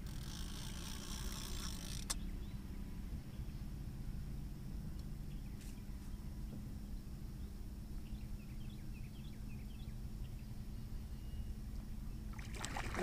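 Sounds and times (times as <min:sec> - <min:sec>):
small birds chirping: 0:02.0 - 0:03.8, 0:05.0 - 0:12.4
steady low rumble: 0:02.0 - 0:13.0.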